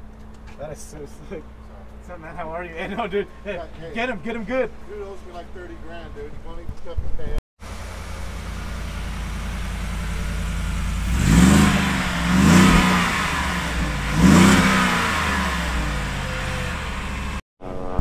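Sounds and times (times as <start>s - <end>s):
truck engine idling and revving: 7.6s - 17.4s.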